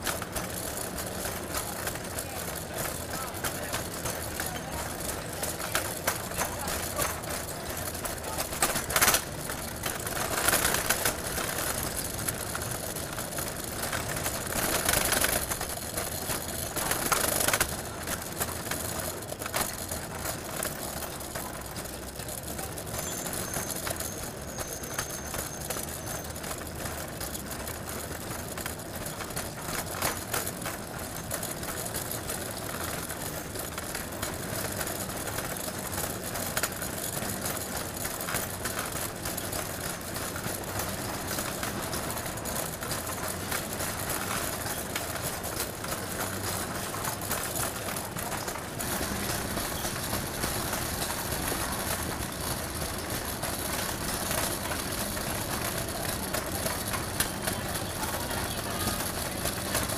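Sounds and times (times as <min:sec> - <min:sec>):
traffic hum: 0:00.0 - 0:59.9
vehicles passing: 0:39.2 - 0:59.9.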